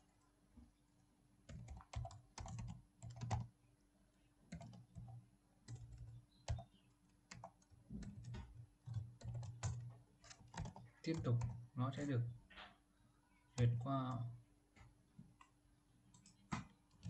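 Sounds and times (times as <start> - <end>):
typing on computer keyboard: 1.5 - 3.5, 4.5 - 6.7, 7.3 - 11.7.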